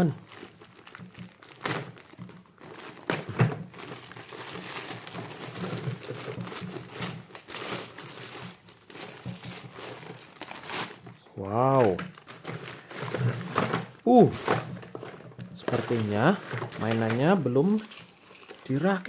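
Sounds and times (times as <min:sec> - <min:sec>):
plastic wrap crinkling: 0:00.0 - 0:19.0.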